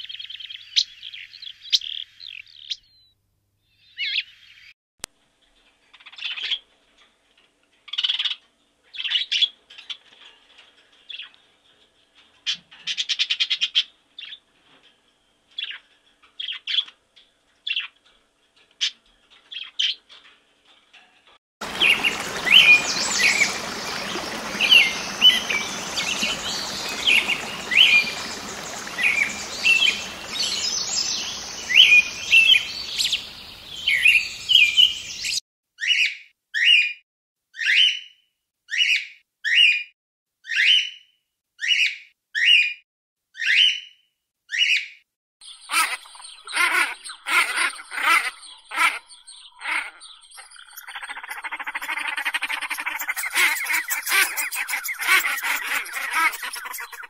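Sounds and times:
outdoor hiss: 21.6 - 35.3
parrot rapid chirps: 45.6 - 57.0
budgerigar chirping: 45.7 - 57.0
parrot loud calls: 45.7 - 57.0.

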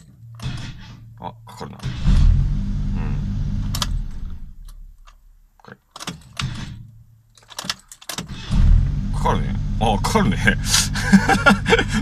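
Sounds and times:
car engine idling: 2.1 - 4.7, 8.5 - 12.0.

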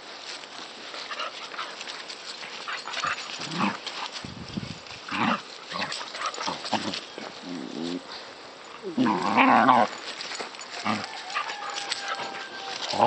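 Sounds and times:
paws scuffling on grass: 0.0 - 13.0
dogs growling and barking: 2.5 - 4.2, 5.0 - 13.0.

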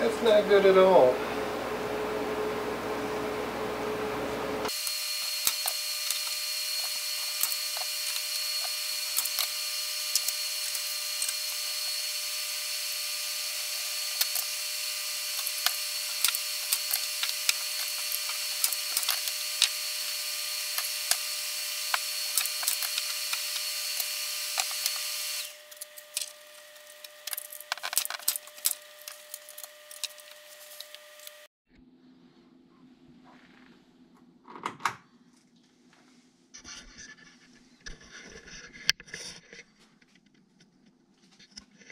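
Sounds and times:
constant whine: 0.0 - 33.0.

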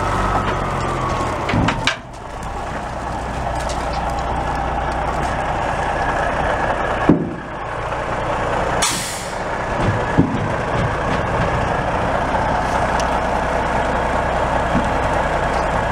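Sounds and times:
diesel truck engine running: 0.0 - 15.9
air hissing: 8.8 - 9.5.

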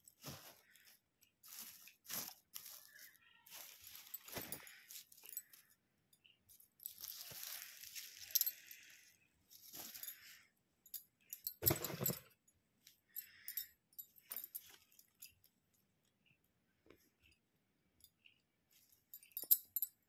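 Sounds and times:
paper rustling and crinkling: 0.0 - 5.6, 6.9 - 8.4.

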